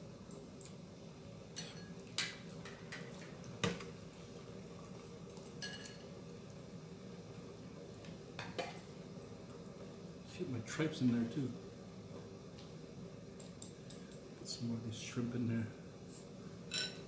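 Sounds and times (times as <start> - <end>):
steady low hum: 0.0 - 17.0
utensils clinking against bowls: 5.6 - 6.1, 16.7 - 17.0.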